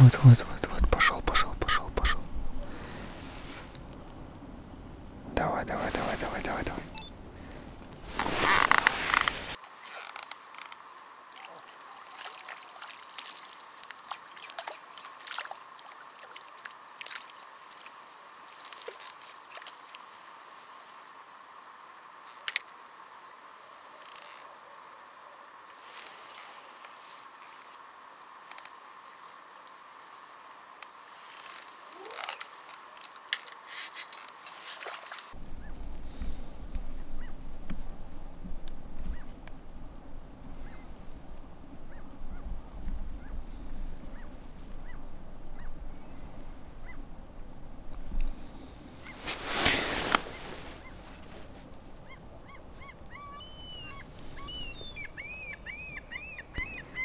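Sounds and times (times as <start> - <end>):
flock of birds calling: 52.0 - 57.0.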